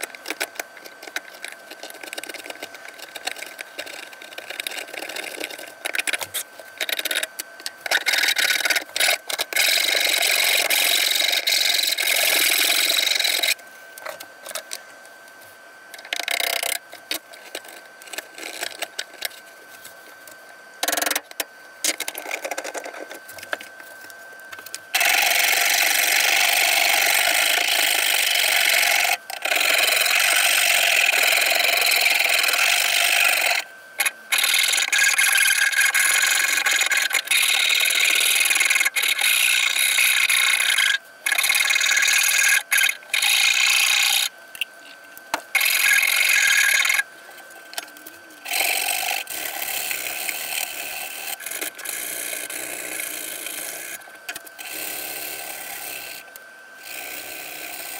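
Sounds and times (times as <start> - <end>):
back-and-forth stroking on wood: 0.0 - 13.6, 25.0 - 44.3, 45.6 - 47.9.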